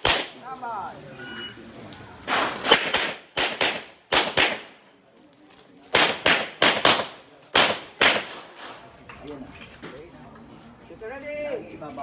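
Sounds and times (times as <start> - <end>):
handgun shots: 0.0 - 0.4.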